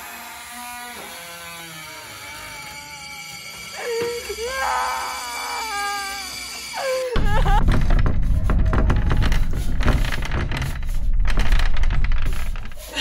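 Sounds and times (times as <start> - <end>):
wailing cry-like tones: 1.3 - 7.8.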